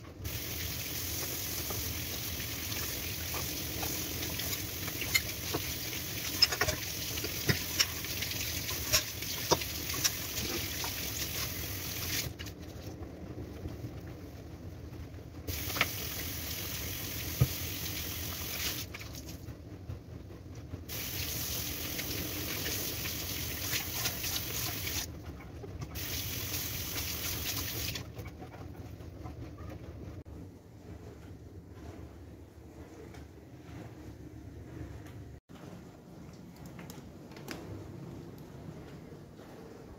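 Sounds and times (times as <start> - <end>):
tap water running into sink: 0.3 - 12.3, 15.5 - 19.0, 26.0 - 28.0
dishes knocking and clinking: 4.9 - 8.0.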